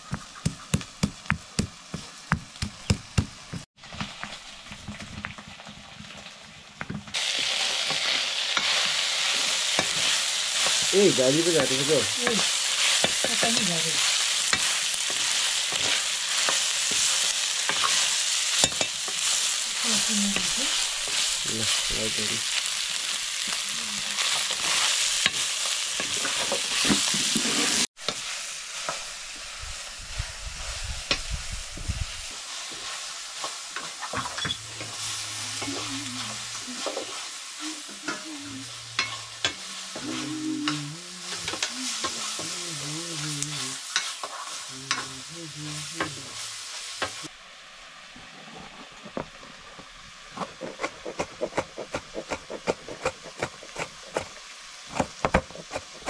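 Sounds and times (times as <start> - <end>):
meat sizzling in a pan: 0.0 - 56.0
spoon clicking and scraping pan: 7.9 - 8.9, 12.3 - 19.4, 39.0 - 39.7, 43.8 - 45.1.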